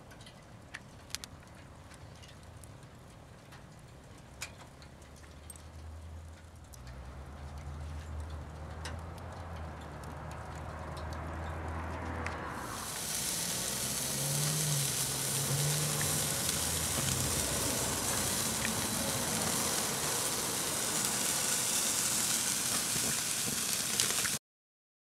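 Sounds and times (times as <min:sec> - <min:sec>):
steak sizzling on grill: 0:12.5 - 0:24.4.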